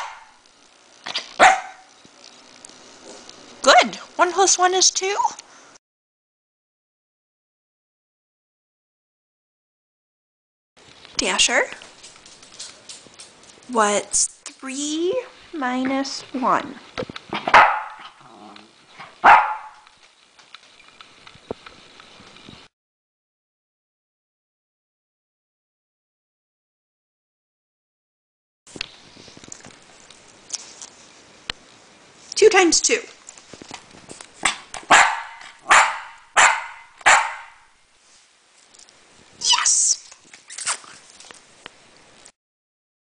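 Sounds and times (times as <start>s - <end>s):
dog barking: 0.0s - 0.3s, 1.4s - 1.9s, 17.4s - 18.2s, 19.0s - 19.8s, 34.9s - 37.6s.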